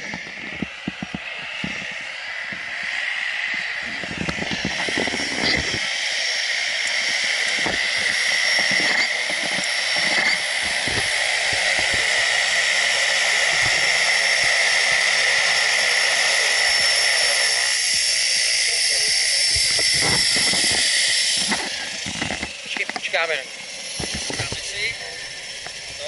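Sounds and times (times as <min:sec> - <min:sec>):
propeller plane engine whine: 0:00.0 - 0:26.0.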